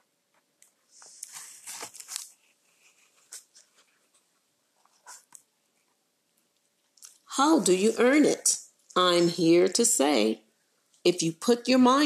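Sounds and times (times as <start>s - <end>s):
paper rustling: 0.4s - 6.0s.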